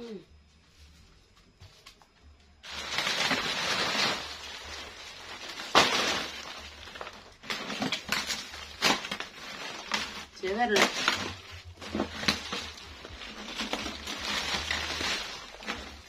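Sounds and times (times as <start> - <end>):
crackers rustling and crunching: 0.7 - 16.0
plastic bag crinkling: 2.6 - 16.0.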